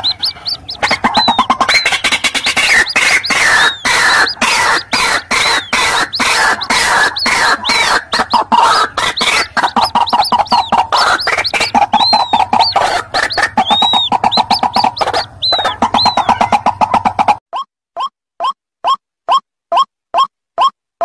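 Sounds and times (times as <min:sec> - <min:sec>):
thin high bird calls: 0:00.0 - 0:16.7
birds croaking: 0:00.0 - 0:17.4.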